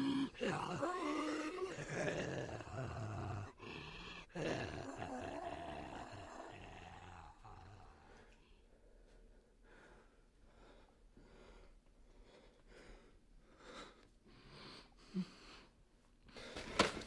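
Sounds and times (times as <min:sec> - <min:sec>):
man breathing: 0:08.0 - 0:16.9.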